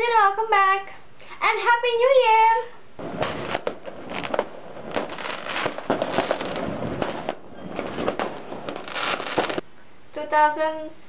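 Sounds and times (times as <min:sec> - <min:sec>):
fireworks bangs and crackles: 0:03.0 - 0:09.6.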